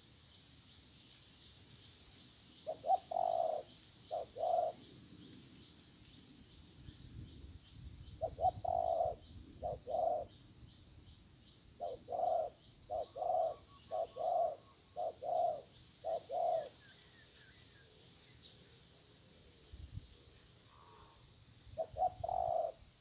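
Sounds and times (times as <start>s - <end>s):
small birds chirping: 0.0s - 18.9s, 21.7s - 23.0s
dove cooing: 2.6s - 4.9s, 8.2s - 10.4s, 11.8s - 16.8s, 21.8s - 22.9s.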